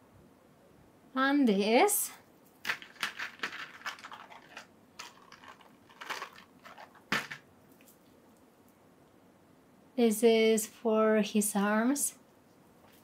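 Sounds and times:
plastic packaging crinkling: 0:02.6 - 0:07.4.

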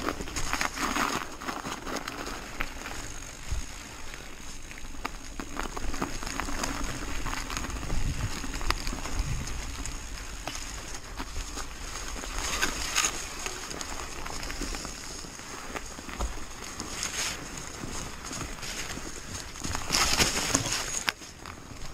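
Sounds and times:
bike clicks and rattles: 0:00.0 - 0:21.9
bike tyres on gravel: 0:00.0 - 0:21.9.

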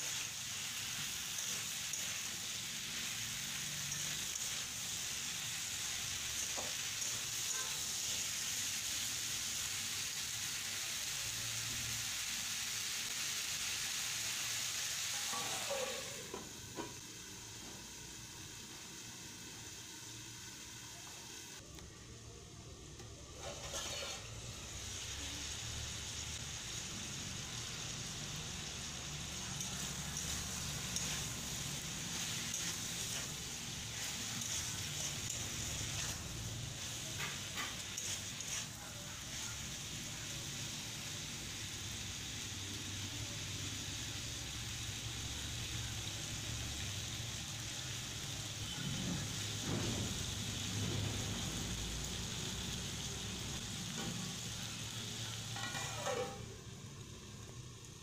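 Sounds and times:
vegetables sizzling in a pan: 0:00.0 - 0:58.0
spatula scraping a pan: 0:23.4 - 0:24.4, 0:30.2 - 0:38.8, 0:55.6 - 0:56.5.

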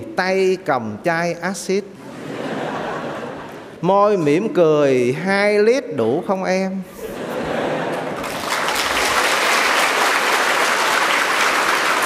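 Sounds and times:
audience applauding: 0:08.0 - 0:12.0.

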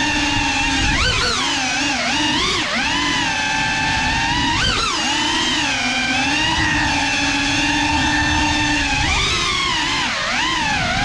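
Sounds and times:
drone propellers whining: 0:00.0 - 0:11.0.

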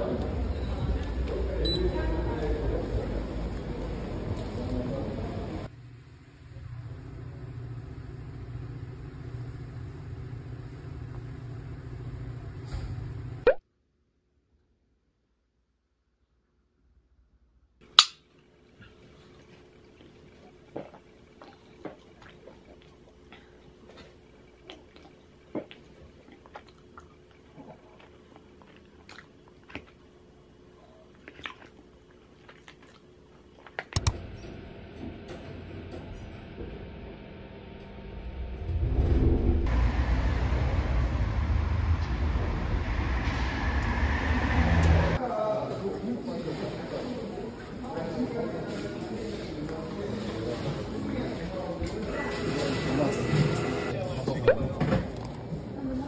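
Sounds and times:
low mechanical hum: 0:00.0 - 0:13.5, 0:17.8 - 0:56.0
chewing: 0:18.9 - 0:34.0
sharp clicks: 0:34.0 - 0:34.2
loud sweeping sound: 0:38.2 - 0:45.2.

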